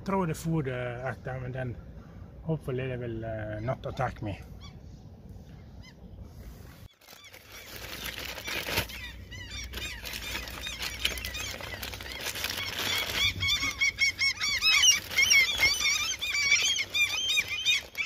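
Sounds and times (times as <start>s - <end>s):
gulls squawking: 6.8s - 18.0s
plastic bag rustling: 6.8s - 18.0s.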